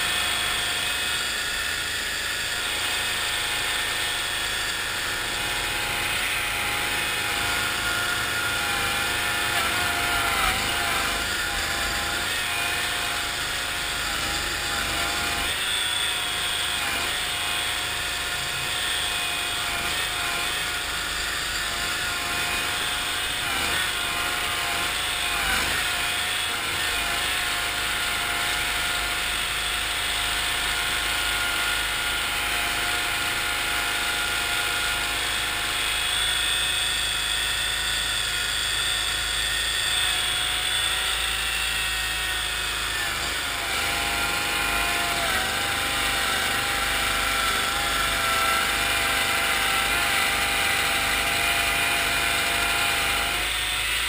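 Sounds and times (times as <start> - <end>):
tracked vehicle engine running: 17.3 - 19.3.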